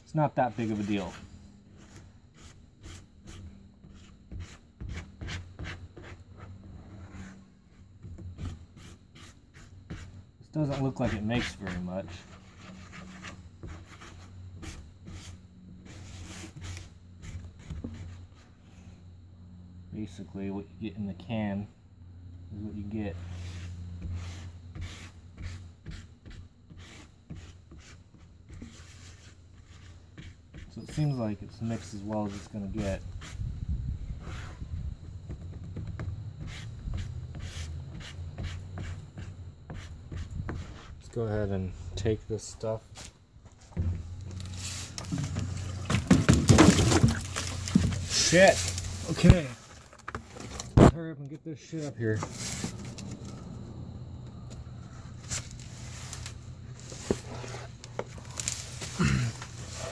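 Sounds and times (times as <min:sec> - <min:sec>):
putty scraping on cardboard: 0:00.4 - 0:07.4, 0:08.0 - 0:18.5, 0:23.3 - 0:33.4, 0:34.2 - 0:34.7, 0:35.3 - 0:41.0, 0:56.8 - 0:58.7.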